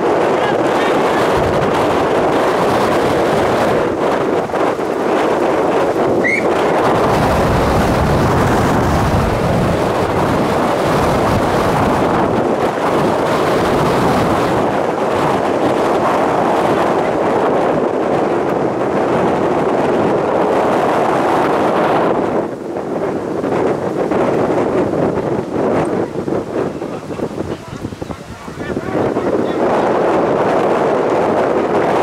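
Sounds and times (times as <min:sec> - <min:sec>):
wind buffeting microphone: 0:00.0 - 0:32.0
rising whistle: 0:06.2 - 0:06.6.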